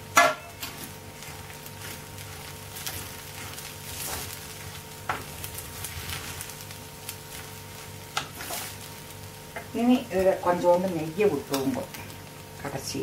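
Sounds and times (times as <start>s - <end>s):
wooden spatula scraping pan: 1.2s - 6.5s, 8.2s - 8.8s.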